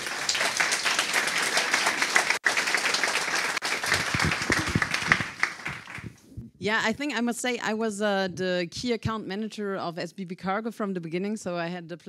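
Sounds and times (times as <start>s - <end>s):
audience applauding: 0.0s - 6.2s.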